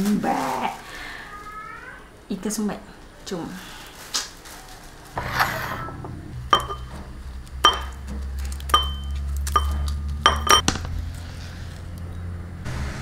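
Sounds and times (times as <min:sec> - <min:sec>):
steady low hum: 0:05.1 - 0:12.7.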